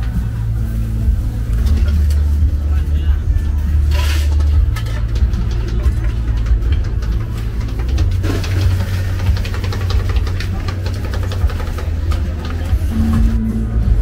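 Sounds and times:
background chatter: 0.0s - 14.0s
low crowd rumble: 0.0s - 14.0s
clinks and clatter: 3.8s - 12.9s.

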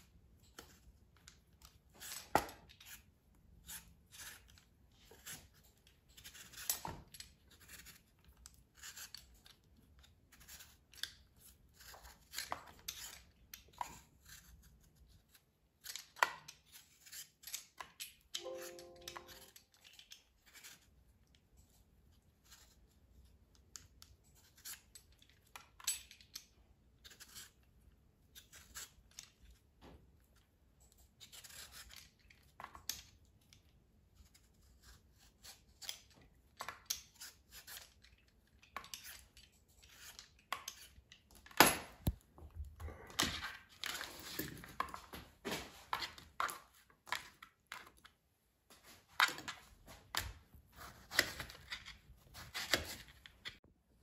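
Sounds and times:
peeler scraping mango skin: 6.2s - 17.8s, 36.9s - 38.2s.

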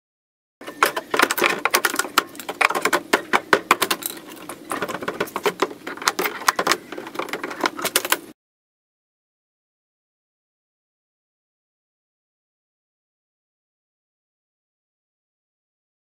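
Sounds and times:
plywood crate cracking and creaking: 0.6s - 8.3s.

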